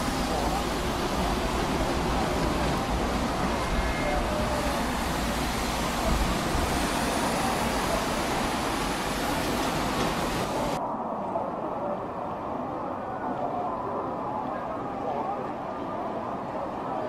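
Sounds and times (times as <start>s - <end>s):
road noise hiss: 0.0s - 10.8s.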